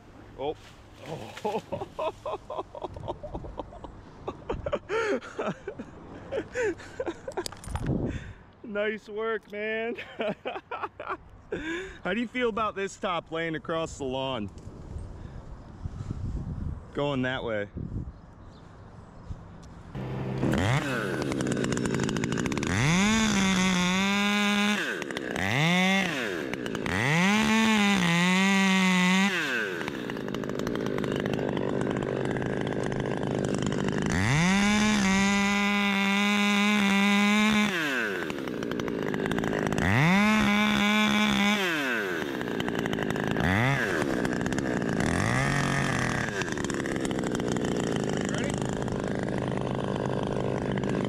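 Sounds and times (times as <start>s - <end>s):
chainsaw revving while cutting: 20.0s - 51.0s.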